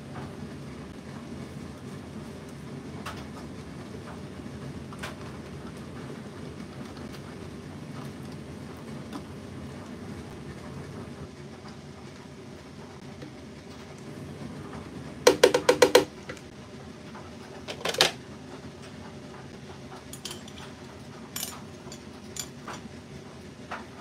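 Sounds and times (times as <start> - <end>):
plastic pot knocking on jug rim: 15.3 - 16.1.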